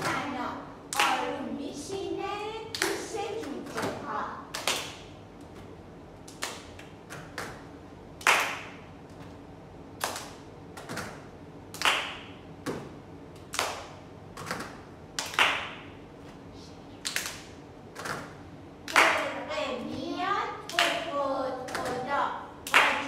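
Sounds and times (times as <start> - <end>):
hand claps and pats: 4.5 - 9.4, 10.0 - 16.4, 17.0 - 19.3, 20.7 - 21.0, 21.7 - 22.0.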